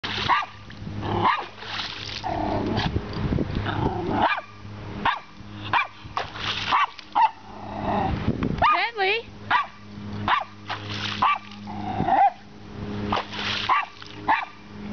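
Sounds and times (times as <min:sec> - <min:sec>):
creek water splashing: 0:00.0 - 0:02.9, 0:05.5 - 0:07.5, 0:10.3 - 0:12.0, 0:13.0 - 0:14.6
small dog barking: 0:00.3 - 0:00.6, 0:04.2 - 0:06.0, 0:06.7 - 0:07.4, 0:08.6 - 0:08.9, 0:09.5 - 0:10.6, 0:11.2 - 0:11.5, 0:13.7 - 0:14.6.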